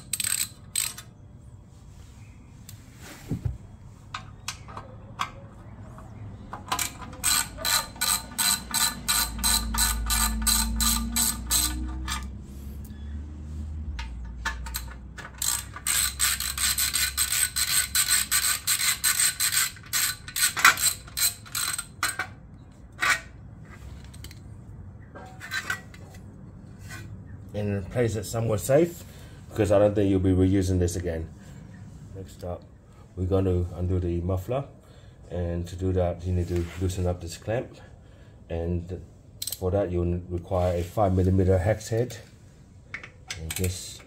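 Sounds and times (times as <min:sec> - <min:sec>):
ratchet wrench clicking: 0:00.0 - 0:01.1, 0:06.7 - 0:12.4, 0:14.0 - 0:22.2, 0:39.4 - 0:39.6.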